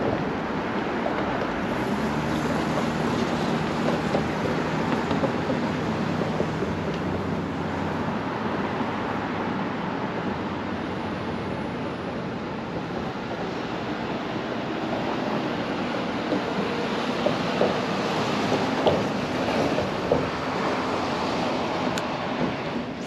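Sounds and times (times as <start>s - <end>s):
road traffic hiss: 0.0s - 23.0s.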